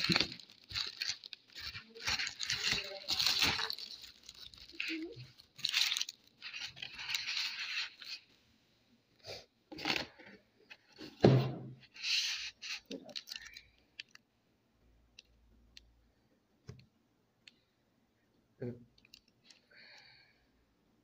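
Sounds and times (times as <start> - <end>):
bubble wrap crinkling: 0.0 - 8.3, 12.0 - 14.2
box thumping down: 11.2 - 11.8.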